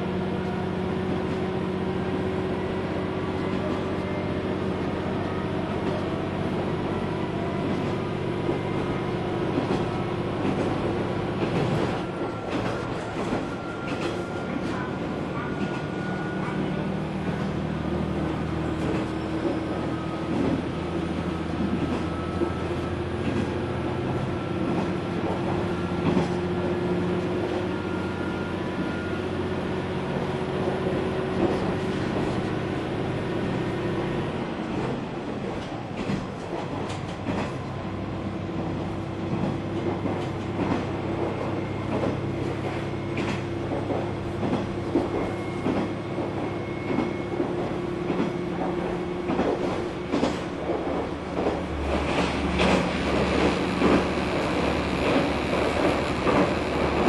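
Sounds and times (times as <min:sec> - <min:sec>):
diesel engine drone: 0:37.2 - 0:57.0.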